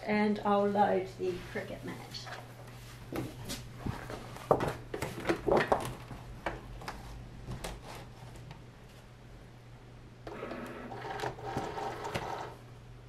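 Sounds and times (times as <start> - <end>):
plastic mat knocks and clicks: 3.1 - 7.8.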